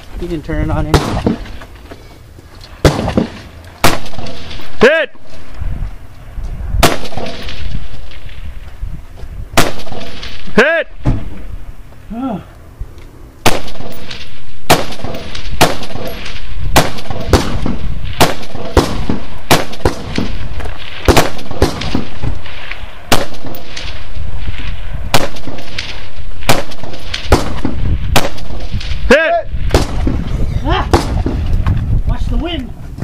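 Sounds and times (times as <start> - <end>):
gunshots: 0.8 - 1.6, 2.8 - 5.0, 6.8 - 8.4, 9.6 - 11.4, 13.4 - 31.5.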